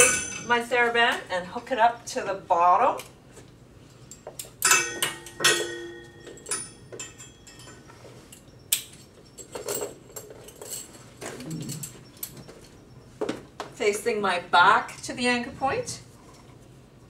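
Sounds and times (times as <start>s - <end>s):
metal hardware clinking on rack: 0.0s - 0.5s, 4.1s - 11.0s.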